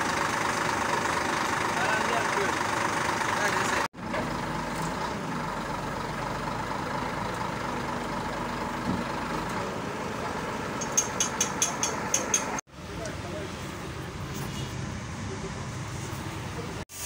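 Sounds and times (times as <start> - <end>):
diesel engine running: 0.0 - 16.8
sharp metallic clicks: 10.8 - 12.6.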